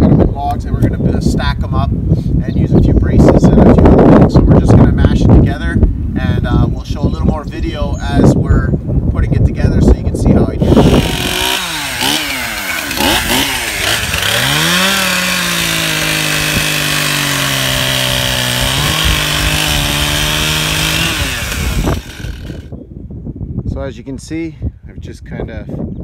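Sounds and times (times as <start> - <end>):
chainsaw cutting log: 10.6 - 22.7.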